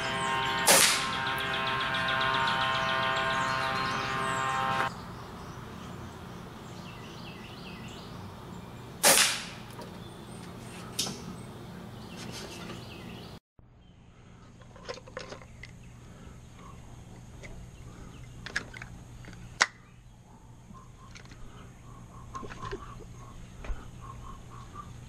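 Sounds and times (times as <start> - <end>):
air rifle shot: 0.7 - 1.1, 9.0 - 9.6.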